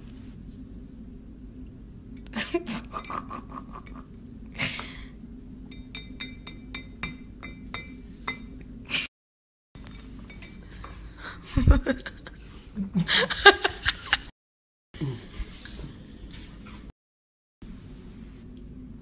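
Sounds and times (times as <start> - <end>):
drinking glass clinking: 5.7 - 8.6.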